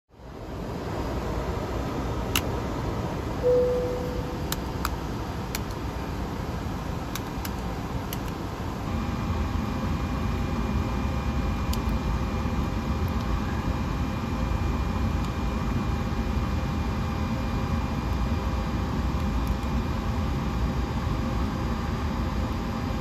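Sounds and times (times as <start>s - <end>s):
air-conditioning fan hum: 0.2s - 23.0s
steady whine: 0.3s - 17.6s
short beep: 3.4s - 4.5s.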